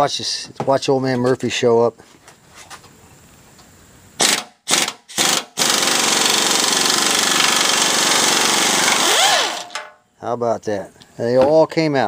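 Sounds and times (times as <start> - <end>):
pneumatic wrench whine: 4.2 - 10.0.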